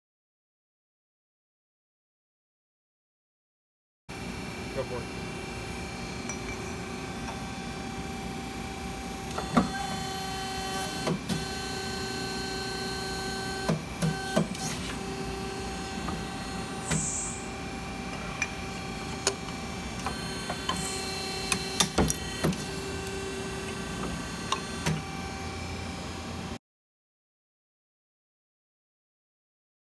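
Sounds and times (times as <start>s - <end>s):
press motor humming: 4.8s - 26.6s.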